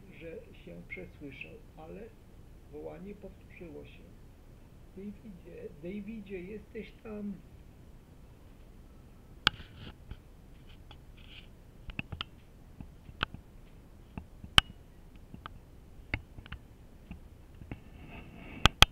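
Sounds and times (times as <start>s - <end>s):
fingers clicking on camera body: 9.5s - 17.8s.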